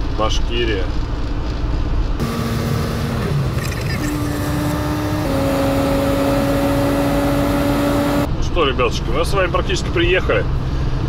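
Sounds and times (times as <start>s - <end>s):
road noise: 0.0s - 11.0s
truck engine hum: 0.9s - 8.4s.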